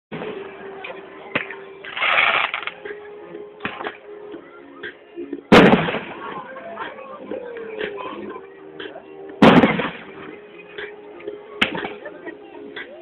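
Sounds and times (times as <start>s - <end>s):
crowd noise: 0.1s - 13.0s
music playing: 0.1s - 13.0s
firework pops and crackle: 1.4s - 2.8s, 9.4s - 10.0s.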